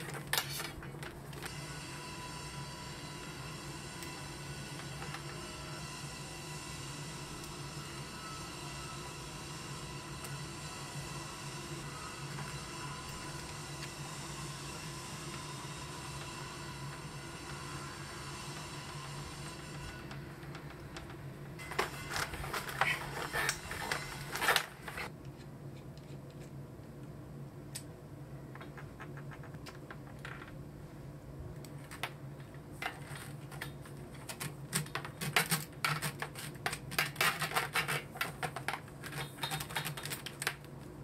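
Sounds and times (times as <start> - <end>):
low steady hum: 0.0 - 41.0
plastic conduit clicks and scratches: 31.6 - 40.9.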